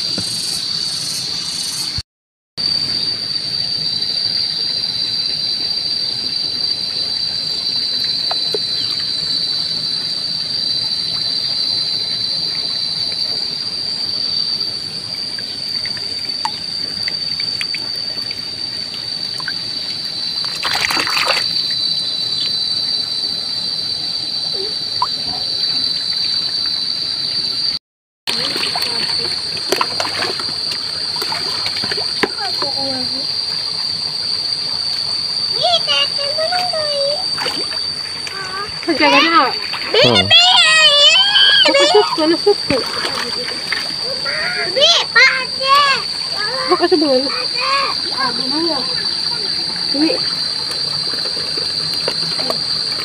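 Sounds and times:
crickets chirring: 0.0 - 2.0, 2.6 - 53.0
water splash: 20.4 - 21.7, 28.3 - 32.6.

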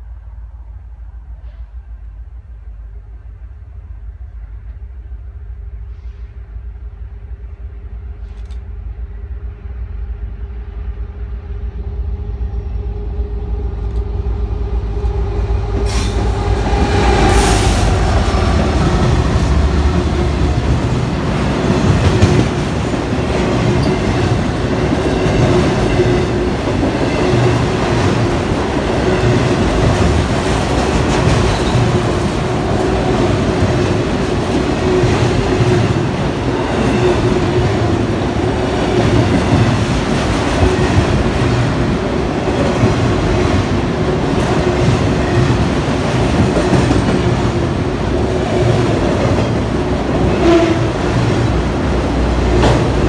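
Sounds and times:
freight train approaching: 0.0 - 53.0
train wheel clatter: 15.8 - 53.0.

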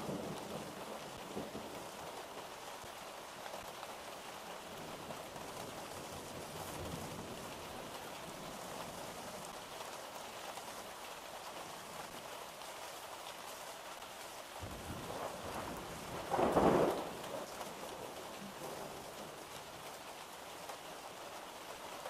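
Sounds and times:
steady rain falling: 0.0 - 22.0.

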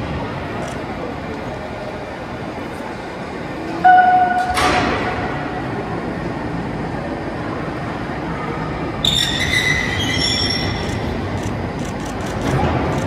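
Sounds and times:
crane mechanical running noise: 0.0 - 13.0
high metallic squeal: 9.0 - 11.0.

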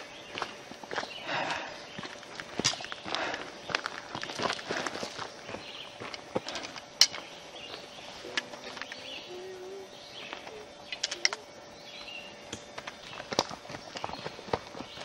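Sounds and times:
faint bird calls: 5.4 - 15.0.

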